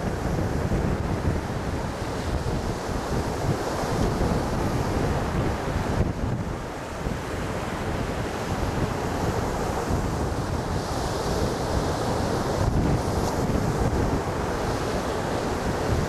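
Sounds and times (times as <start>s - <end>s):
ocean surf breaking on a beach: 0.0s - 16.0s
wind buffeting the microphone: 0.0s - 16.0s.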